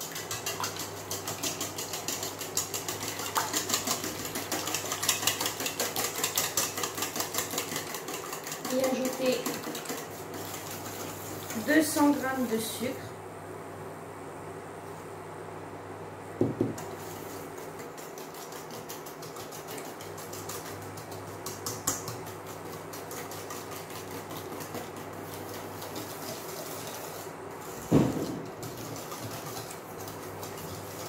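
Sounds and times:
whisk beating in metal bowl: 0.0s - 12.8s, 16.6s - 31.0s.

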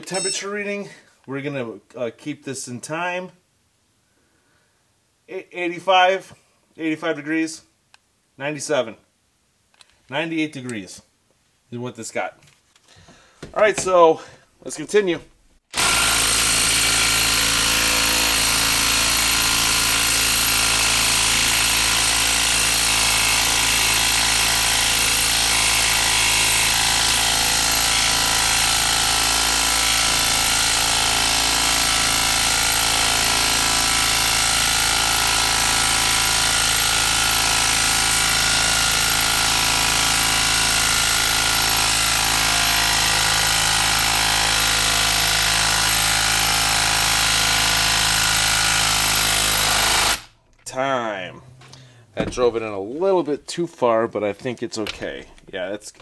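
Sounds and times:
impact driver hammering: 15.8s - 50.3s.

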